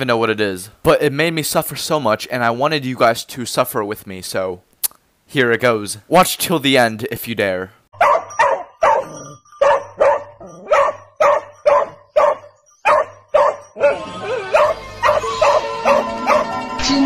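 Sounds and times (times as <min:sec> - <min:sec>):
dog barking: 0:08.0 - 0:16.5
music: 0:13.7 - 0:17.0.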